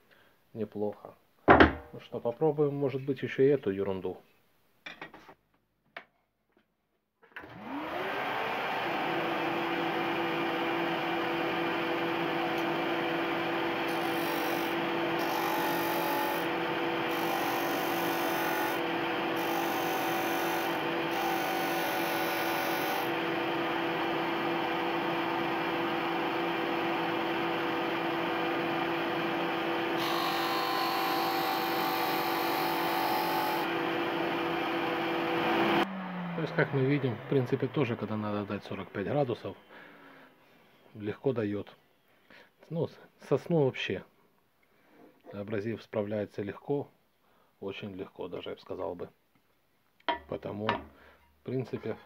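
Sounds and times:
sander humming: 0:07.6 - 0:38.6.

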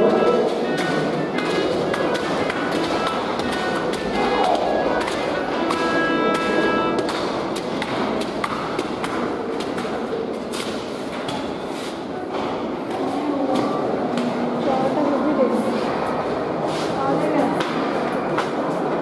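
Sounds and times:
background music with percussive beat: 0:00.9 - 0:09.2.

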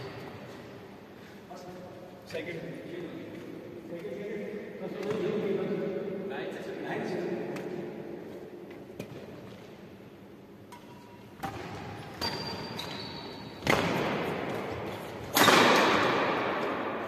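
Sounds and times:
rackets striking shuttlecock: 0:10.6 - 0:13.0, 0:13.6 - 0:17.0.

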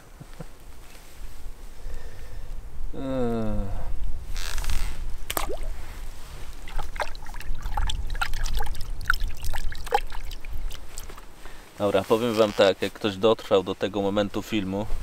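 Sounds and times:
water trickling and splashing: 0:05.3 - 0:11.3.

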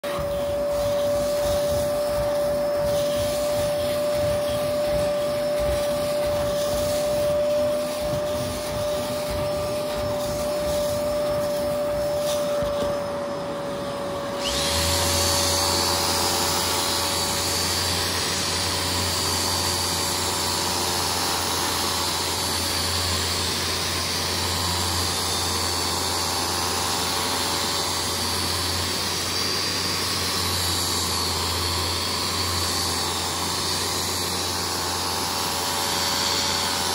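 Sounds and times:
power drill scrubbing carpet: 0:00.0 - 0:36.9
vacuum motor whining: 0:00.0 - 0:36.9.

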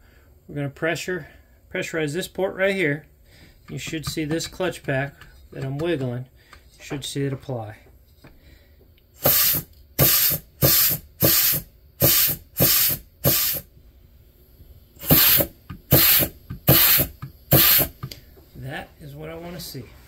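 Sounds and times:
compressed air blasts hissing: 0:09.2 - 0:13.7, 0:15.0 - 0:18.3.

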